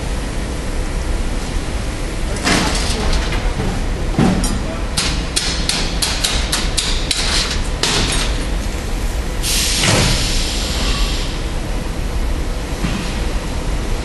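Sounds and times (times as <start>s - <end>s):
low machine rumble: 0.0s - 14.0s
sharp metallic knocks: 4.2s - 8.3s.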